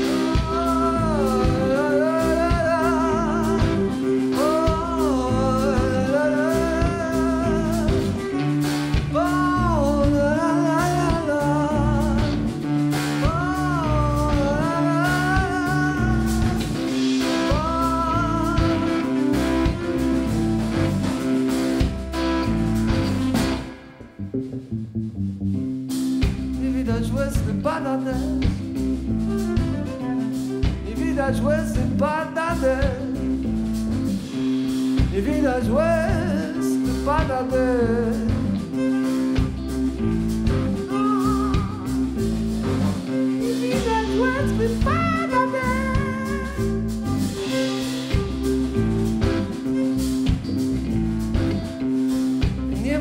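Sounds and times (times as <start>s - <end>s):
bass guitar: 0.0s - 53.0s
drum kit: 0.0s - 53.0s
electric guitar: 0.0s - 53.0s
violin melody with vibrato: 38.5s - 51.8s.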